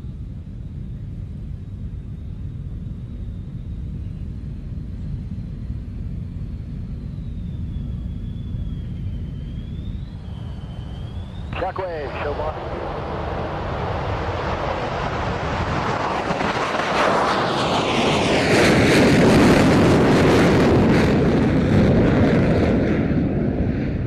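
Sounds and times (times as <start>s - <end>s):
jet engines with afterburner: 0.0s - 24.0s
jet whine falling in pitch: 6.6s - 24.0s.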